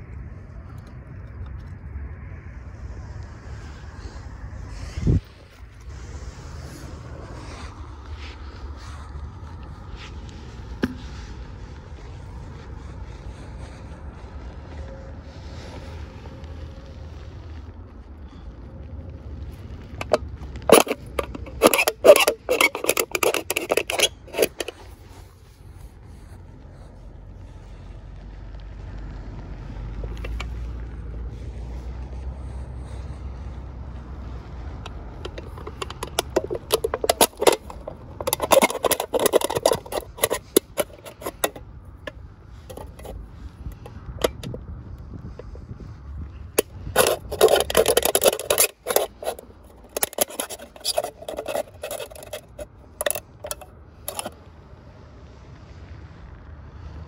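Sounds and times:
low steady rumble: 0:00.0 - 0:57.0
knife scraping aluminium can: 0:19.9 - 0:25.3, 0:30.1 - 0:30.6, 0:34.8 - 0:41.6, 0:42.6 - 0:44.6, 0:46.6 - 0:54.4.

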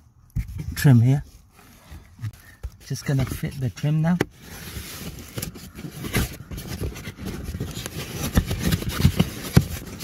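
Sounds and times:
plastic scraping against carpet: 0:03.0 - 0:10.0.

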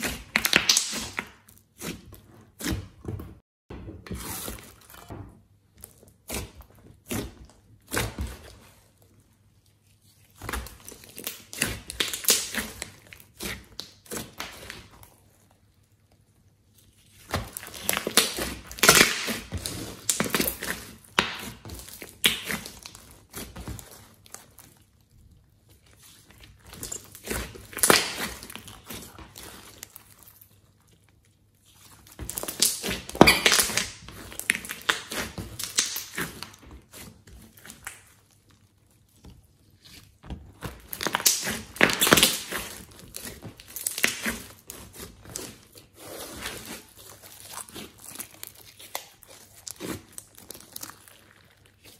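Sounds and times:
slime squishing: 0:00.0 - 0:03.4, 0:04.1 - 0:51.9.

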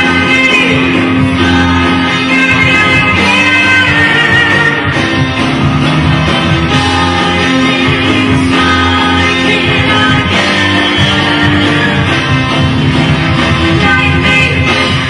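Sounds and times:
drum kit: 0:00.0 - 0:15.0
live rock band playing: 0:00.0 - 0:15.0
man singing: 0:06.7 - 0:12.4, 0:13.6 - 0:15.0.

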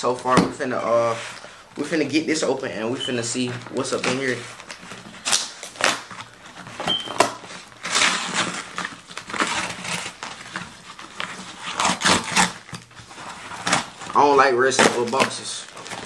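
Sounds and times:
tape and cardboard tearing: 0:03.5 - 0:16.0.

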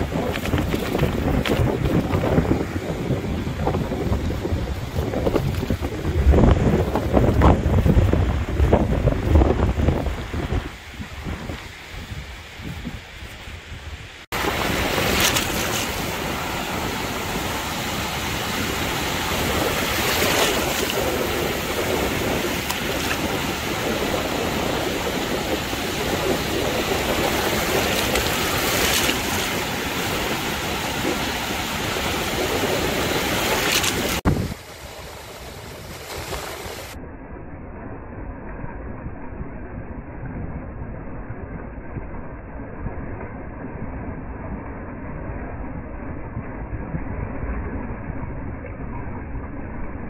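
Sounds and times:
surf washing up beach: 0:00.0 - 0:37.0.

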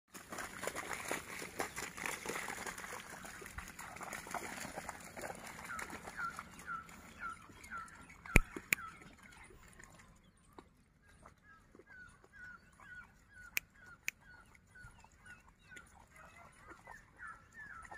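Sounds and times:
birds chirping: 0:05.4 - 0:17.9
bird repeating hooked chirp: 0:06.2 - 0:09.0.

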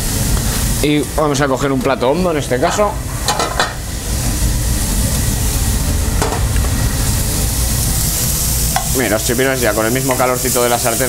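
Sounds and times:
squid sizzling in oil: 0:00.0 - 0:11.0
low steady rumble: 0:02.0 - 0:10.5.

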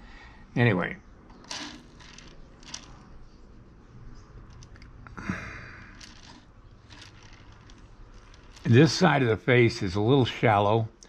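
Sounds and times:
man breathing: 0:00.0 - 0:00.5, 0:05.1 - 0:06.3.

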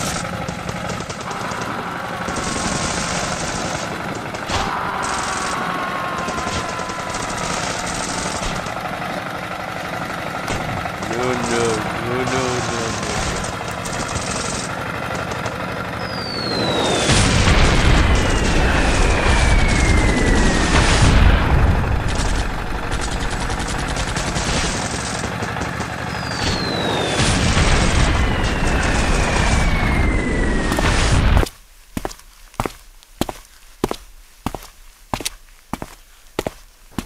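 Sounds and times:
rapid gunfire: 0:00.0 - 0:09.0, 0:10.4 - 0:15.4, 0:16.3 - 0:31.4
heavy rumbling blasts: 0:00.0 - 0:15.1, 0:16.0 - 0:31.4
falling whistles: 0:16.0 - 0:17.1, 0:26.1 - 0:27.2, 0:28.0 - 0:30.8.

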